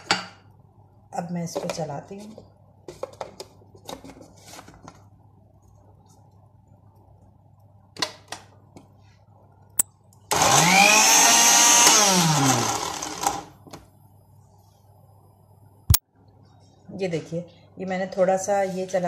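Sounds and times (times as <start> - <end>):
food processor motor whine: 10.3 - 13.5.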